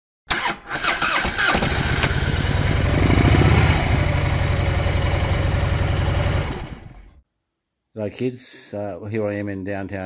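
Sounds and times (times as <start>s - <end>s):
motorcycle engine idling: 2.1s - 7.1s.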